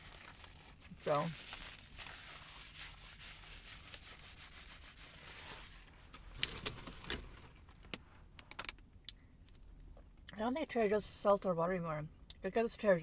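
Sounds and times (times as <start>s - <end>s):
rustling of items handled: 0.0s - 8.7s.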